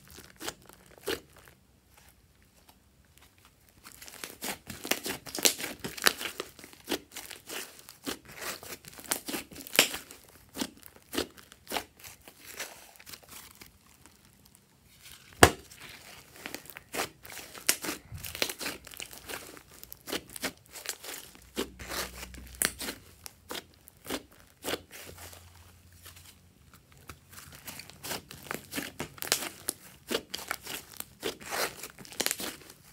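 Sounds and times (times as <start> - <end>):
slime popping and crackling: 0.0 - 1.6, 3.7 - 14.6, 15.2 - 25.3, 26.7 - 32.9
loud slime pop: 15.4 - 15.7.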